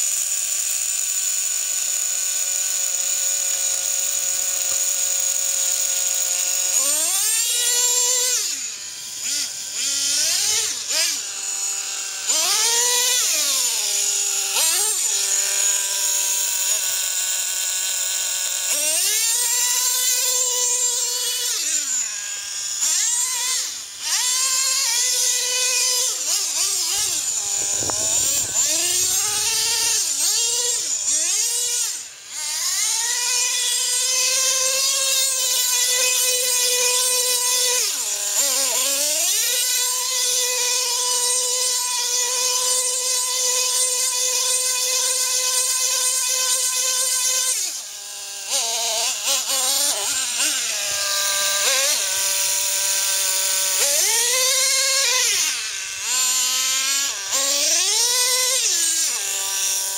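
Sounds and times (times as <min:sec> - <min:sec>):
rc truck engine revving: 0:02.8 - 0:59.9.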